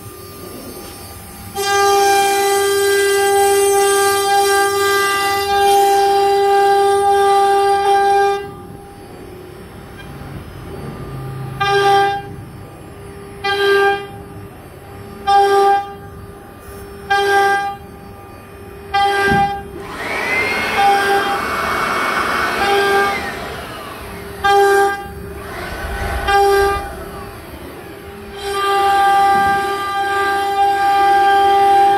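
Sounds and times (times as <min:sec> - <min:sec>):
router spindle high whine: 0:00.0 - 0:11.6, 0:19.6 - 0:31.9.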